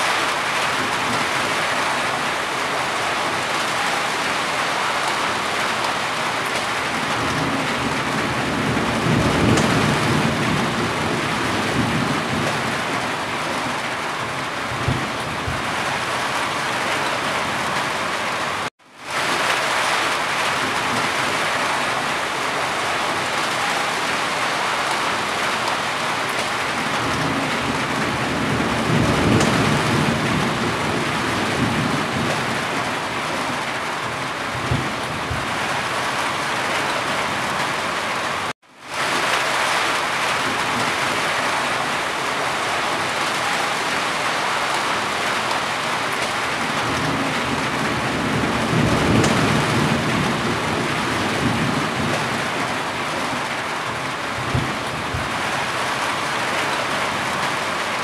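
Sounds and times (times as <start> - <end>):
heavy rain on a roof: 0.0 - 58.0
distant thunder rumbles: 6.5 - 17.0, 20.5 - 36.2, 40.2 - 56.2.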